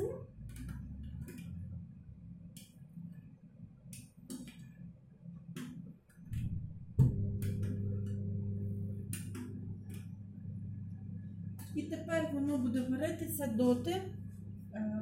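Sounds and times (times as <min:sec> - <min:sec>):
kitchen appliance humming: 0:06.3 - 0:14.9.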